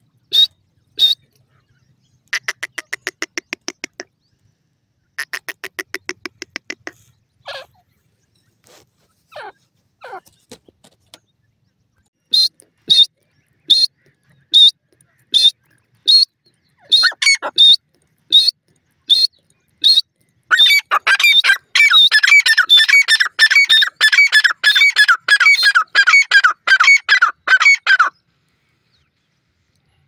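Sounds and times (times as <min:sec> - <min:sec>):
francolin calling: 0:12.2 - 0:28.2.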